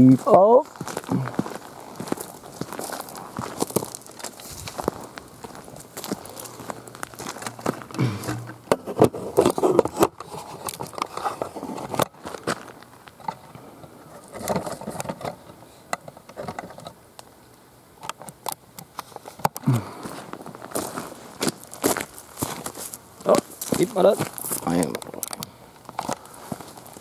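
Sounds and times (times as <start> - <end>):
rustling: 0.7 - 15.8.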